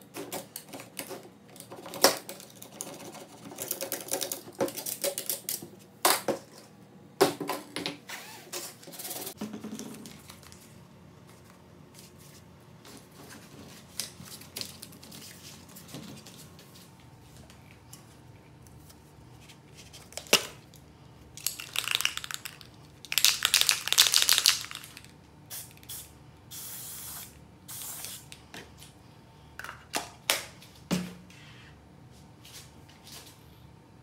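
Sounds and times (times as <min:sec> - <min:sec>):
aerosol spray hissing: 0:25.5 - 0:28.2.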